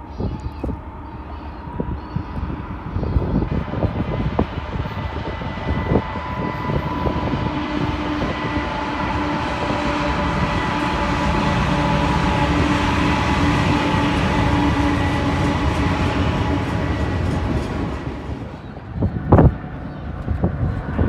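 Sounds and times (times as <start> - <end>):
freight train wheels rumbling: 0.0 - 21.0.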